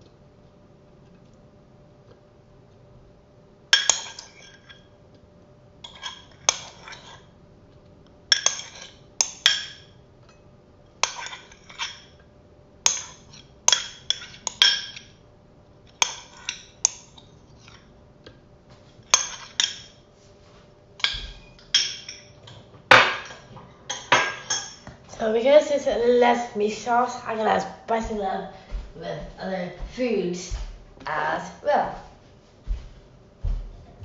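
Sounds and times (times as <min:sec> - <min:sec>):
cutlery clinking on a container: 0:08.3 - 0:09.9.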